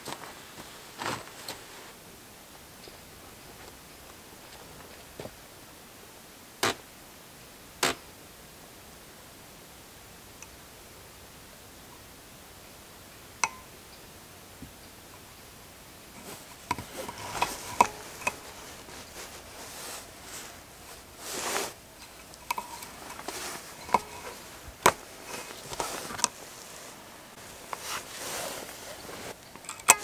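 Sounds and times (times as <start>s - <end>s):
soft rustling: 0.0s - 2.0s, 16.0s - 30.0s.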